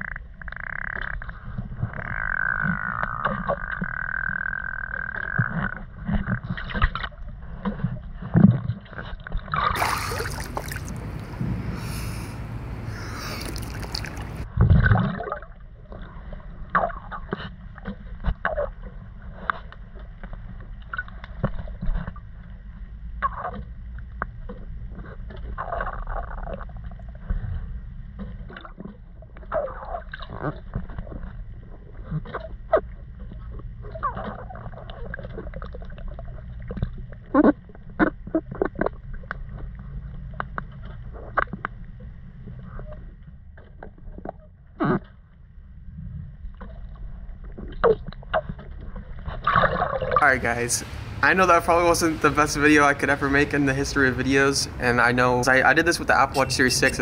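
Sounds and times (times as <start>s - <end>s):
underwater rumble and bubbling: 0.0s - 50.4s
rushing splashing water: 9.5s - 11.4s, 13.3s - 15.4s
steady high tone: 55.2s - 57.0s.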